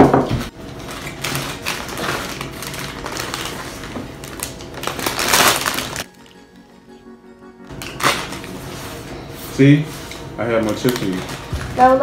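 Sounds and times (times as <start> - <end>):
chip bags crinkling: 0.6 - 6.4, 7.7 - 8.8, 10.2 - 12.0.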